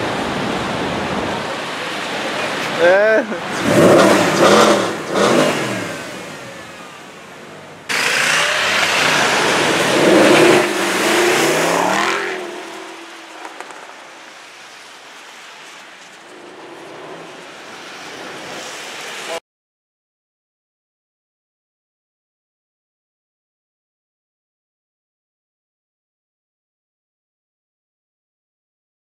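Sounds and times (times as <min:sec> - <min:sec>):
street traffic: 0:00.0 - 0:19.4
car engine revving and accelerating: 0:03.4 - 0:06.6, 0:07.9 - 0:13.9.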